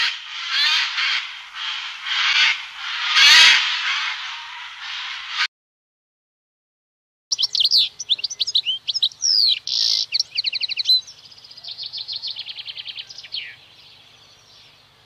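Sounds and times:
bird trill: 0.0s - 4.4s, 7.3s - 15.0s
finch singing twittering song: 7.3s - 15.0s.

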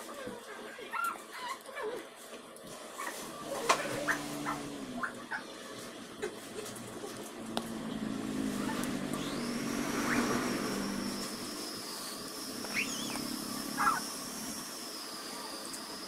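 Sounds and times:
low hum: 3.3s - 16.0s
high-pitched whine: 7.4s - 16.0s.

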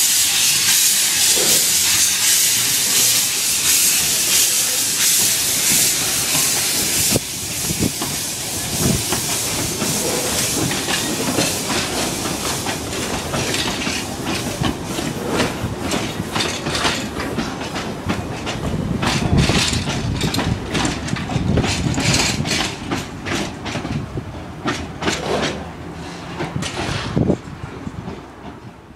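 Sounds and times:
steam locomotive hissing steam: 0.0s - 23.0s
wheels clicking over rail joints: 8.8s - 28.8s.

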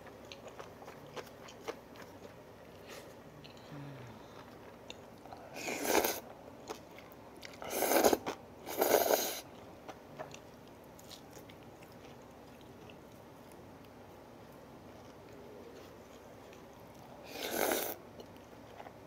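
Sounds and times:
quiet chewing: 0.0s - 19.0s
loud hissing noodle slurps: 5.6s - 6.2s, 7.7s - 9.4s, 17.3s - 18.0s.

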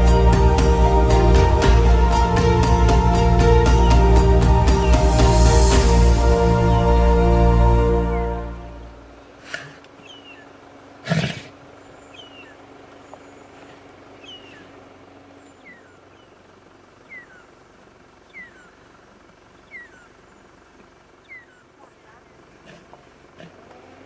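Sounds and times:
bird chirping: 9.2s - 22.9s
lion growling: 9.4s - 12.5s, 22.3s - 24.0s.

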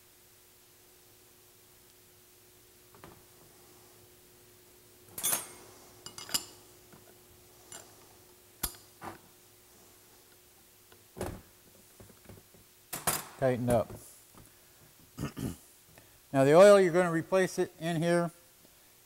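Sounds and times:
wrench clinking on metal: 5.2s - 6.6s.

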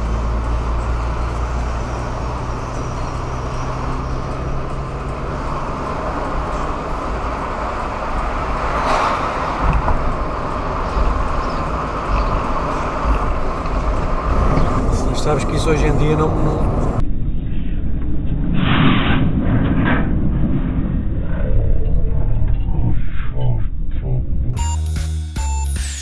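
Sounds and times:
car engine hum: 0.0s - 17.0s.

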